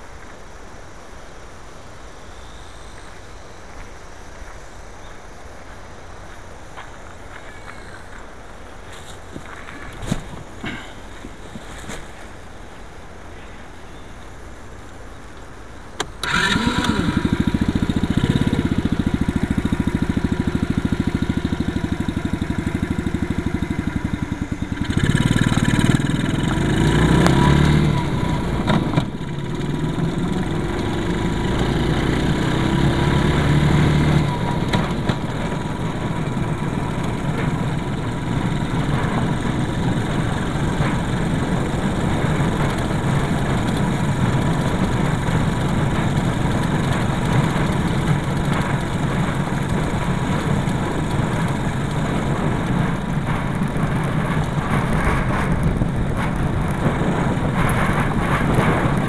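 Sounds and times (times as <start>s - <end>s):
vehicle rattling on gravel: 4.5s - 59.0s
small engine starting and running: 15.8s - 59.0s.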